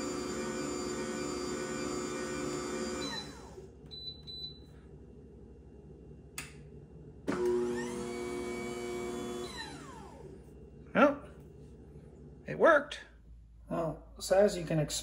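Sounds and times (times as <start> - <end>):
juicer motor humming: 0.0 - 3.9, 7.2 - 10.5.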